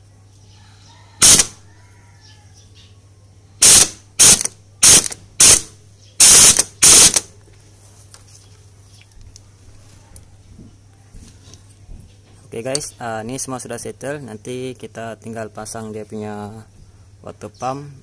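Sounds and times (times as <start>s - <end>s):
ratchet wrench clicking: 1.2s - 1.6s, 3.6s - 7.3s.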